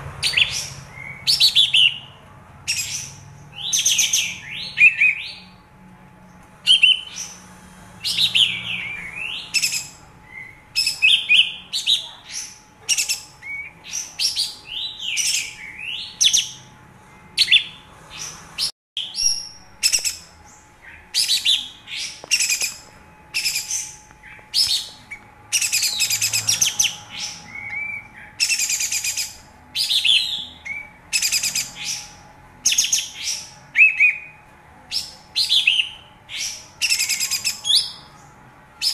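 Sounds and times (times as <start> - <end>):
faint steady hum: 0.0 - 38.9
bulbul singing chattering phrases: 8.1 - 16.7.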